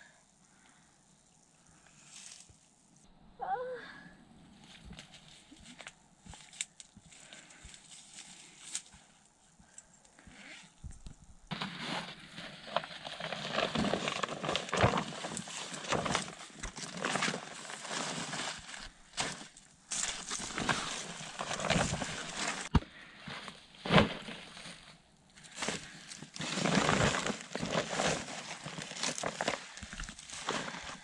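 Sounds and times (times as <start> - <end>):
plastic tarpaulin rustling: 10.4 - 31.0.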